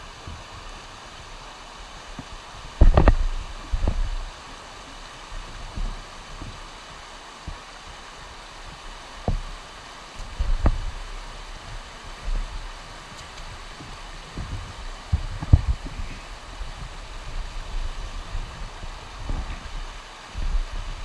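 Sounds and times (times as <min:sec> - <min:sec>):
water rushing over rocks: 0:00.0 - 0:21.0
dull thumps: 0:02.8 - 0:04.1.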